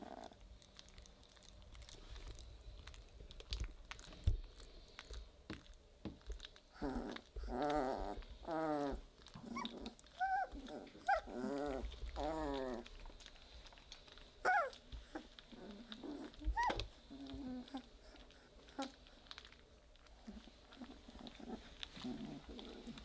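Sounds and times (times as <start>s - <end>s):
puppies whine-growling: 6.7s - 23.0s
puppy high squeals: 14.4s - 14.8s.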